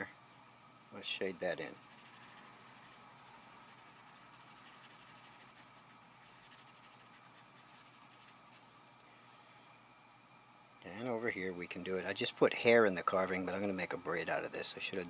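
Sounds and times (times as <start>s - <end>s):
pencil scratching on paper: 1.6s - 8.6s.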